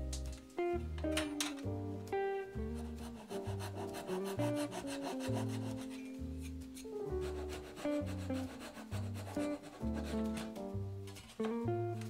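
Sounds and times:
acoustic guitar music: 0:00.0 - 0:12.0
saw rasping through wood: 0:02.6 - 0:10.6.

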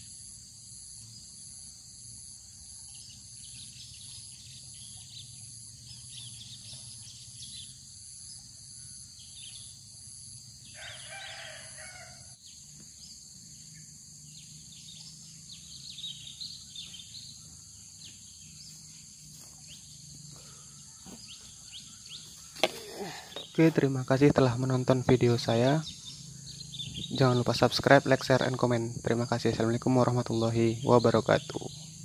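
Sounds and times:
insects buzzing: 0:00.0 - 0:32.0
small birds chirping: 0:00.0 - 0:32.0
rooster crowing: 0:10.7 - 0:12.4.

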